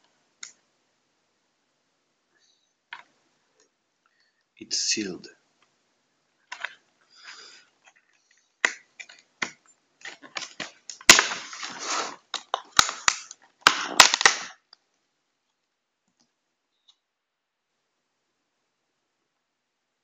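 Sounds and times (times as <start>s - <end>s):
packaging being torn open: 10.0s - 14.6s.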